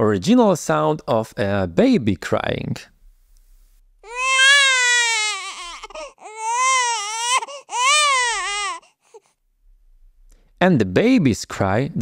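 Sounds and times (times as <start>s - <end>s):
baby crying: 4.0s - 9.3s.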